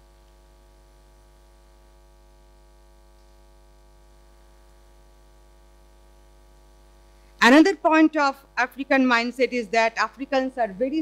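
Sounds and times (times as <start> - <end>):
faint mains hum: 0.0 - 11.0.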